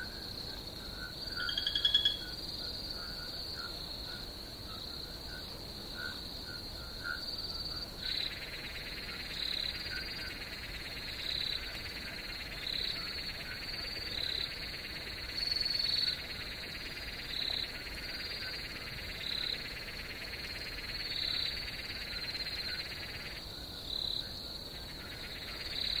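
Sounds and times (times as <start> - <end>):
high insect trill: 0.0 - 26.0.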